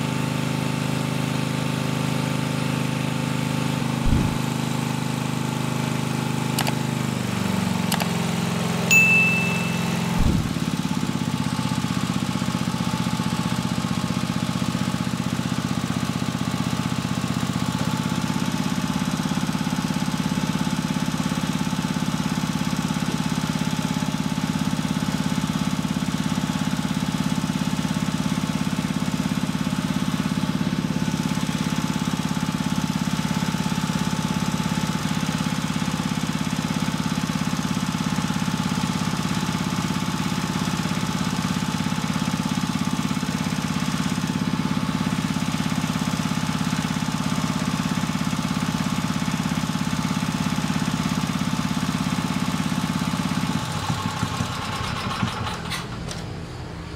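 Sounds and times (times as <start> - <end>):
pump running: 3.8 - 4.6
dull thumps: 4.0 - 4.4
brief high squeak: 8.9 - 10.6.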